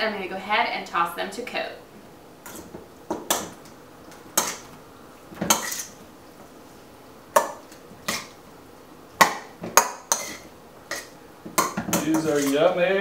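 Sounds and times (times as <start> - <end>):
metal utensil scraping steel bowl: 5.4 - 6.0, 9.8 - 12.7.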